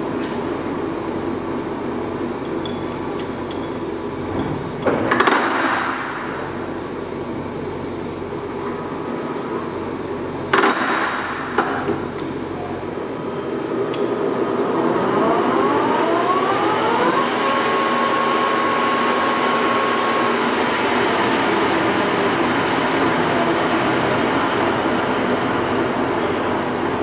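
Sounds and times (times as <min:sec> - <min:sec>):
lathe spindle whining: 0:13.3 - 0:27.0.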